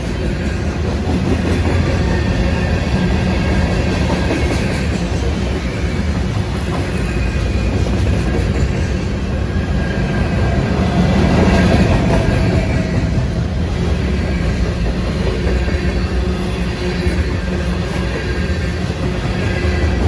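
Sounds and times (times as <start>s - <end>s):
steel wheels rumbling on rail: 0.0s - 20.0s.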